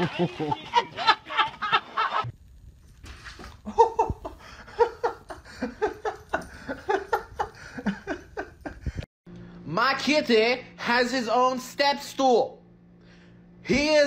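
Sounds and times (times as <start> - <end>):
person laughing: 0.0 - 2.3, 3.2 - 9.0.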